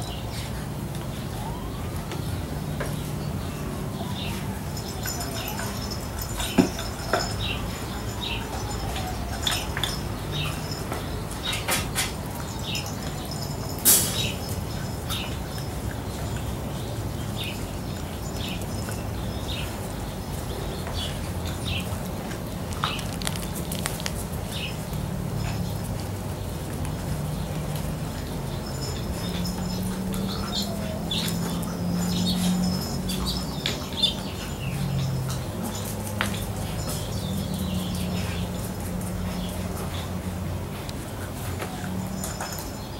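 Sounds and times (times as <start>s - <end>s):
puppies chirping: 2.3s - 42.9s
claws clicking on concrete: 20.8s - 25.0s.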